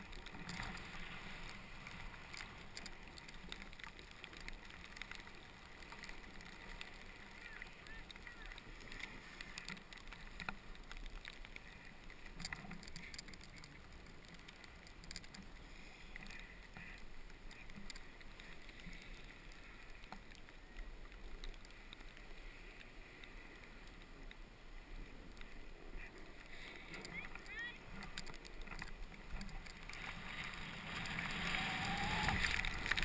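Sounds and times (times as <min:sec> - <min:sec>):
snowboard scrapes and clicks: 0:00.0 - 0:03.5, 0:28.2 - 0:33.0
snowboard sliding over snow: 0:00.0 - 0:33.0.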